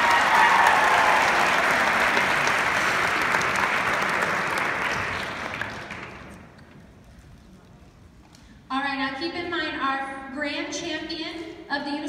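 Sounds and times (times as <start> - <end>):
large audience applauding: 0.0 - 6.4.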